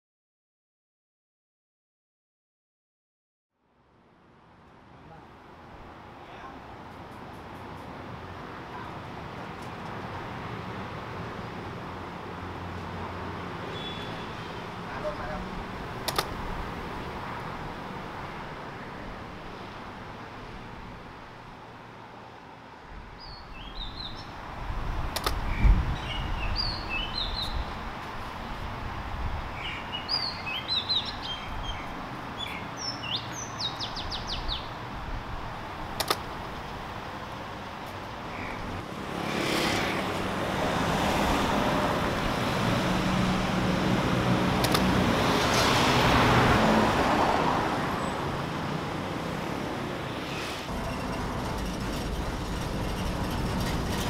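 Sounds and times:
vehicles passing: 0:03.6 - 0:54.0
small birds chirping: 0:23.2 - 0:24.4, 0:25.4 - 0:27.8, 0:29.6 - 0:34.8.

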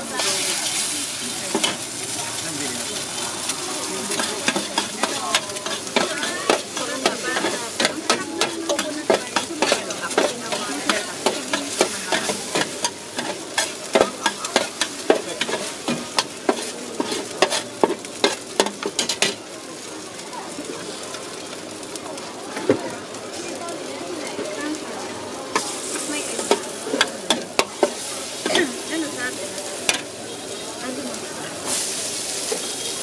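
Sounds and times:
noodles sizzling on metal pan: 0:00.0 - 0:33.0
metal spatula scraping pan: 0:04.1 - 0:19.4.

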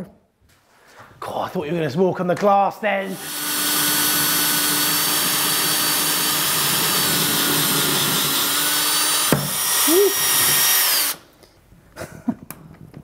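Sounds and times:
cordless drill drilling into tile: 0:03.2 - 0:11.3.

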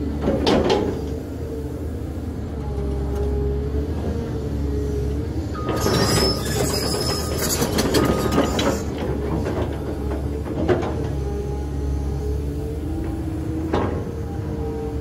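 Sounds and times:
excavator diesel engine running: 0:00.0 - 0:15.0
metallic squealing and clanking: 0:05.5 - 0:09.3.

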